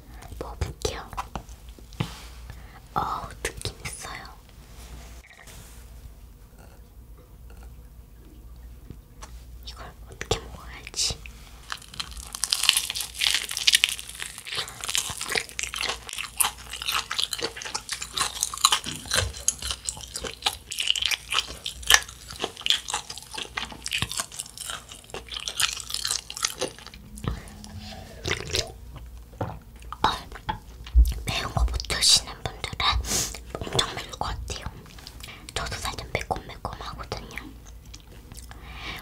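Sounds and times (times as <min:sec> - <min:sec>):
gulping a drink: 0:06.5 - 0:07.9
crunching and chewing crispy food: 0:10.7 - 0:27.5
chewing chewy rice cakes: 0:10.8 - 0:27.0, 0:37.0 - 0:38.6.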